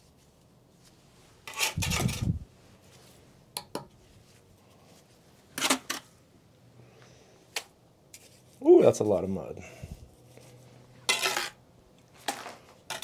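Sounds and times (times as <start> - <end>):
trowel scraping mortar: 1.4 - 2.3, 11.0 - 11.6, 12.2 - 13.0.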